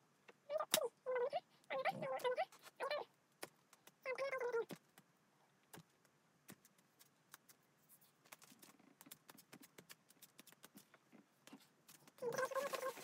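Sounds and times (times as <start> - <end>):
wax strip crinkling and rubbing: 5.8 - 13.0.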